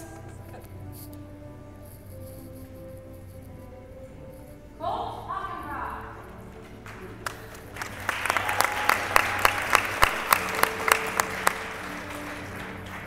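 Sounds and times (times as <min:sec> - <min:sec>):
audience applauding: 0:06.8 - 0:13.0
loud sharp claps close by: 0:06.8 - 0:13.0.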